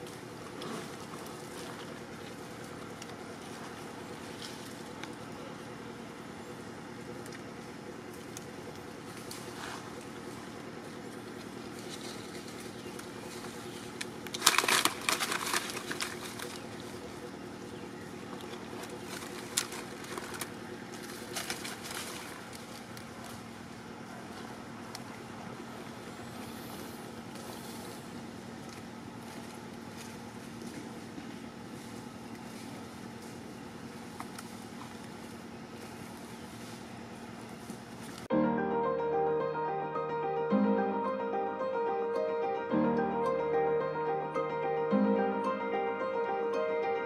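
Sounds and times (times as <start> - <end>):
dry leaves crackling: 0.0 - 5.6, 8.1 - 17.3, 18.2 - 23.8, 26.4 - 38.3
outdoor background noise: 0.0 - 47.0
steady low hum: 0.0 - 47.0.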